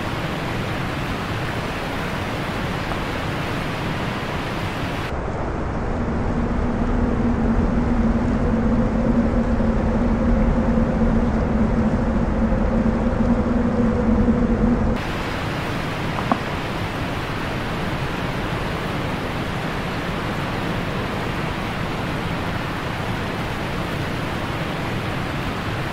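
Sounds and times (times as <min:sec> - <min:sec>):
waterfall roaring: 0:00.0 - 0:05.2, 0:15.0 - 0:25.9
steady low hum: 0:00.0 - 0:25.9.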